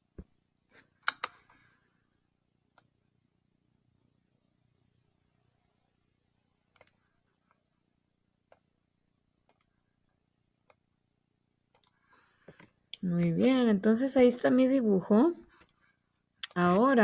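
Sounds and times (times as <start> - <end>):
faint room hum: 0.0 - 17.0.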